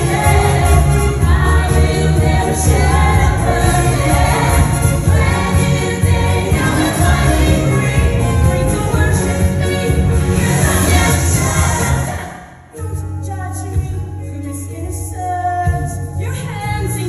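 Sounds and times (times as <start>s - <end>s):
cast singing together: 0.0s - 12.6s
loud accompaniment with pulsing bass: 0.0s - 17.0s.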